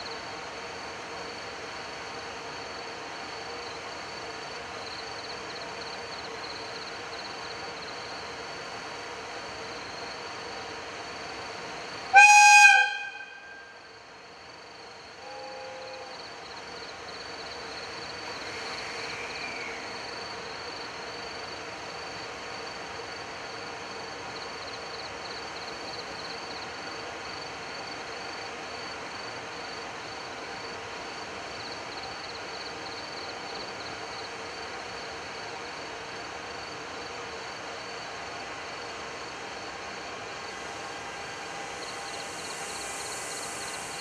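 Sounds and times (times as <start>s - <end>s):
crickets chirping: 0.0s - 44.0s
electric locomotive humming: 0.0s - 44.0s
train horn: 12.1s - 13.9s, 15.1s - 16.2s.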